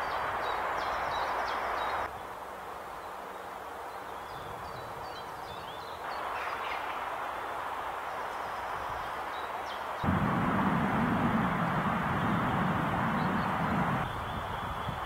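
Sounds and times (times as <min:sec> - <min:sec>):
steady hiss: 0:06.0 - 0:15.0.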